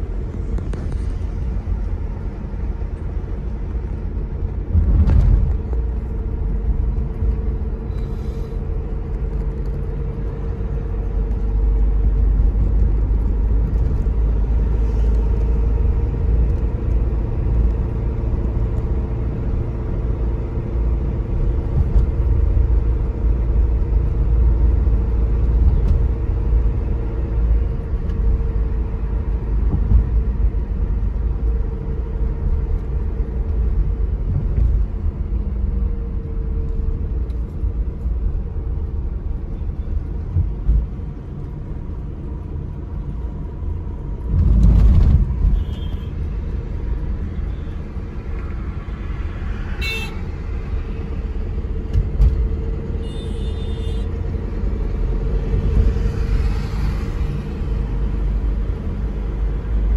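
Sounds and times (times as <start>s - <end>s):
car driving rumble: 0.0s - 59.9s
tyre and road noise: 0.0s - 59.9s
car horns tooting: 49.8s - 50.2s.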